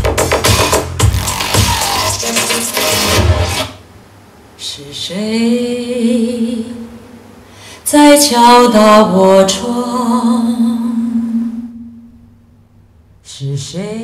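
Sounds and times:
woman singing through speakers: 4.6s - 7.0s, 7.8s - 11.8s, 13.2s - 14.0s.

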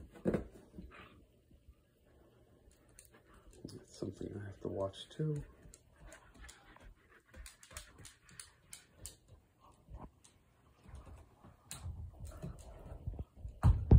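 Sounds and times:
dog claws clicking on wood floor: 5.3s - 13.6s
soft low thumps: 13.0s - 13.9s.

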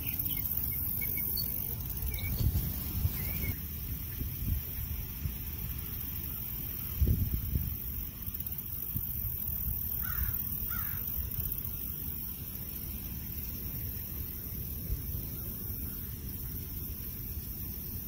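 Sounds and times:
bird calls: 0.0s - 3.6s.

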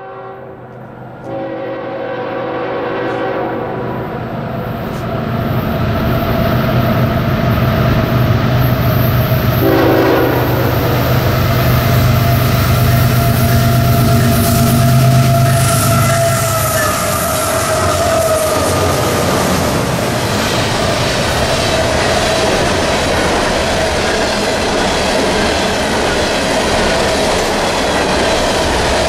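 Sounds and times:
train horn chord: 0.0s - 4.0s, 9.6s - 11.4s, 12.2s - 18.8s
diesel locomotive rumble: 2.9s - 29.0s.

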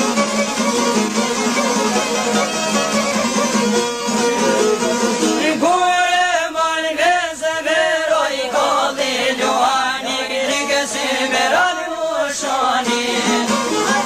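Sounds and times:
instrumental folk accompaniment: 0.0s - 14.0s
man singing: 5.4s - 14.0s.

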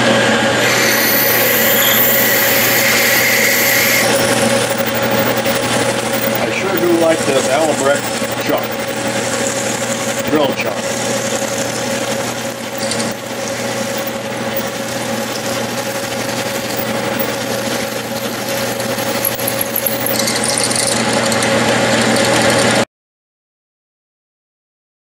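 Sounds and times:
lathe humming: 0.1s - 22.8s
drill cutting hiss: 0.5s - 21.4s.

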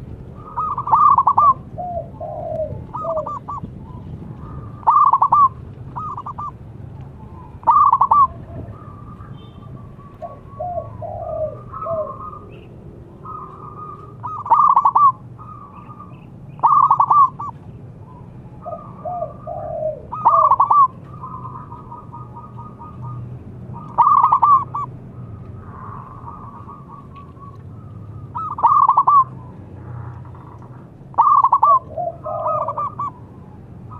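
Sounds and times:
dove cooing: 0.0s - 6.6s, 7.2s - 33.9s.

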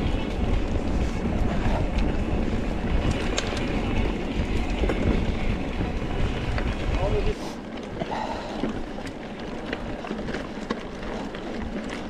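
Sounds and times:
wind on microphone: 0.0s - 7.4s
bike rattling: 0.0s - 12.0s
tyres rumbling on trail: 0.0s - 12.0s.

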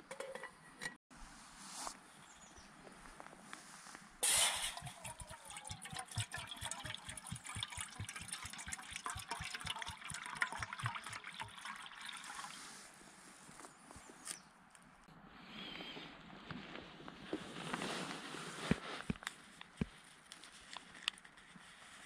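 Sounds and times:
water pouring and glugging: 4.2s - 12.8s.

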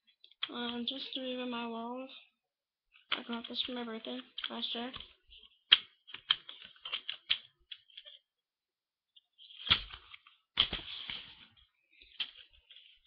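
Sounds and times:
items clicking and rustling: 3.0s - 8.3s, 9.2s - 13.0s.

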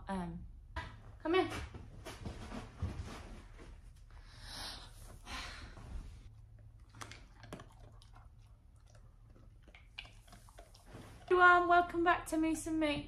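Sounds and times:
dog chewing a treat: 6.4s - 11.3s.

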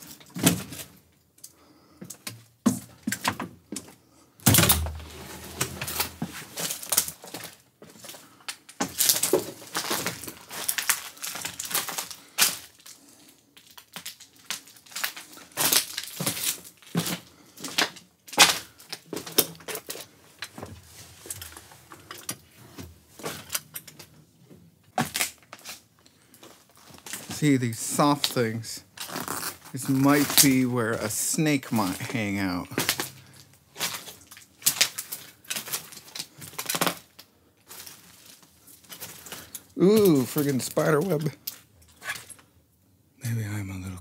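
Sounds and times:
debris snapping underfoot: 4.4s - 13.0s, 13.6s - 20.6s, 24.9s - 27.4s, 31.7s - 42.4s
footsteps crunching on debris: 4.5s - 13.0s, 13.8s - 21.9s, 25.0s - 41.4s.

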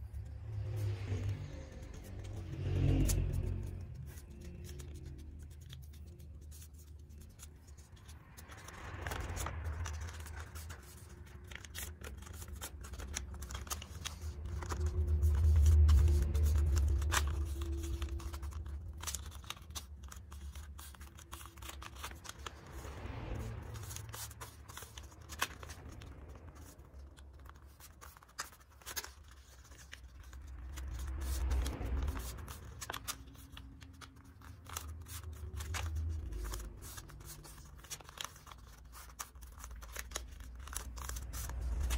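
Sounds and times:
paper being folded and creased: 0.0s - 41.9s
slow low rumbles: 40.4s - 41.9s.

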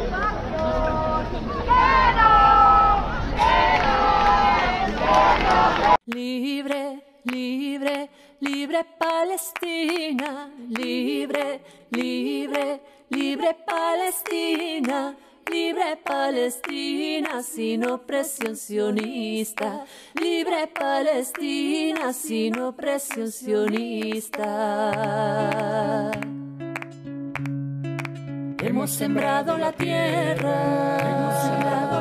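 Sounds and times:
woman singing unaccompanied: 6.1s - 26.3s, 28.6s - 32.0s.

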